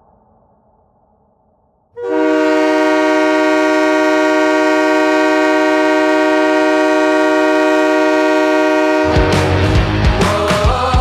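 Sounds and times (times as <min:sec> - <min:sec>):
goal horn blast: 0:02.0 - 0:09.7.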